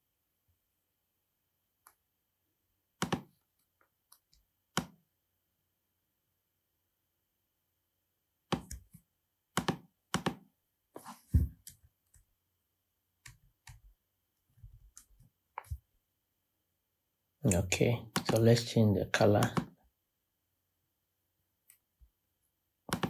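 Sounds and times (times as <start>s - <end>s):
mouse and keyboard clicks: 3.0s - 3.3s, 8.5s - 9.0s.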